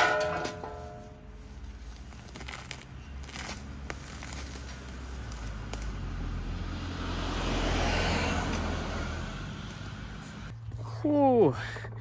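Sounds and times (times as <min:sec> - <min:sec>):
vehicle passing by: 0:03.6 - 0:10.8.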